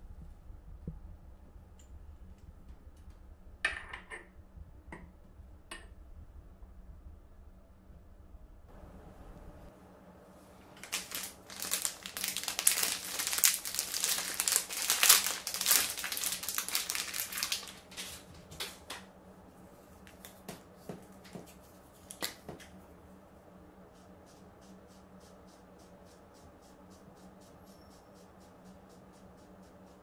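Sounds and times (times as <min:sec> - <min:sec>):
plastic packaging crinkling and tearing: 0:10.8 - 0:18.9.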